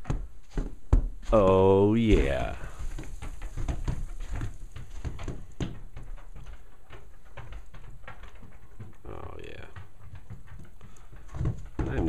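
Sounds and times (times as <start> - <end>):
footsteps crunching in snow: 0.4 - 5.4.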